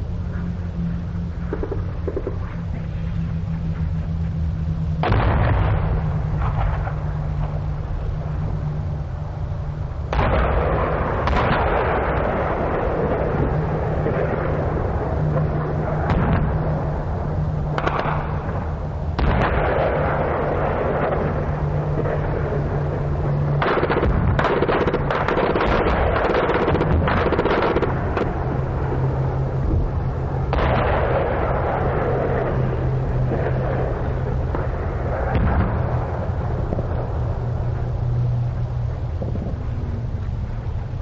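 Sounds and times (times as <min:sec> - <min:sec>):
steady low hum: 0:00.0 - 0:41.0
explosions: 0:05.0 - 0:08.4, 0:10.1 - 0:17.0, 0:17.7 - 0:29.0, 0:29.6 - 0:37.6
gunfire: 0:19.2 - 0:21.4, 0:23.6 - 0:28.3, 0:30.5 - 0:31.7
rapid shots: 0:23.6 - 0:28.3.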